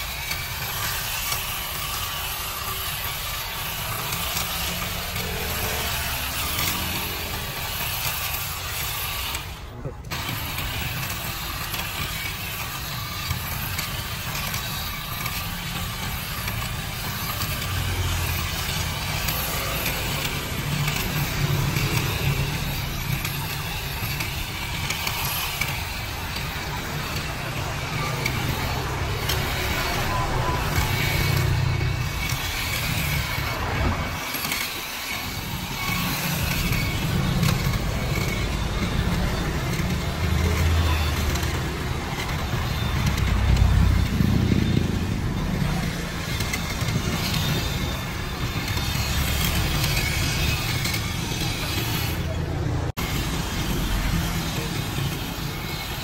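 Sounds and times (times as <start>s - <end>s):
hedge trimmer cutting: 0.0s - 56.0s.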